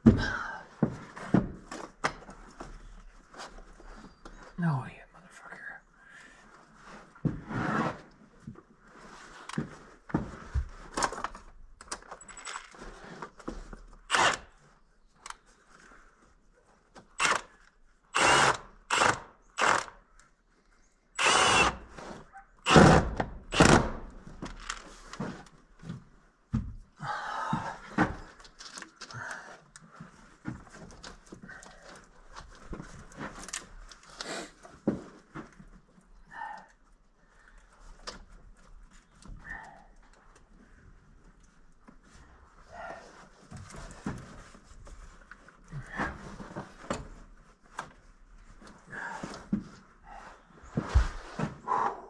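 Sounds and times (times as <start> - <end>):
power tool bursts: 14.1 - 14.4, 18.2 - 19.9, 21.2 - 21.9, 22.7 - 23.9.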